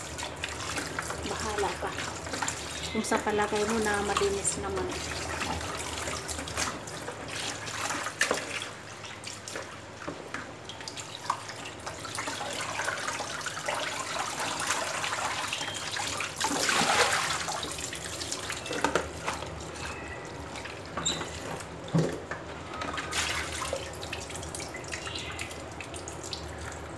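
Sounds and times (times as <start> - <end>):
water dripping: 0.0 - 9.7, 22.8 - 26.9
water splashing and sloshing: 0.0 - 26.9.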